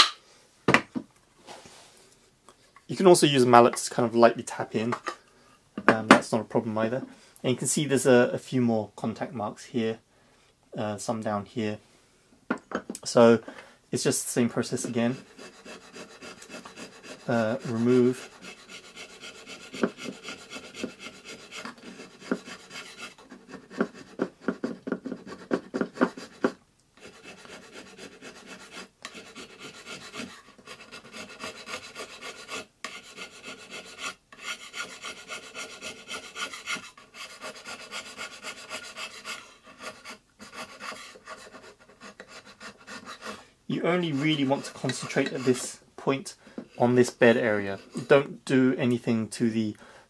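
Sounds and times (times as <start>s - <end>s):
float scraping wooden plane bed: 14.8s - 45.8s.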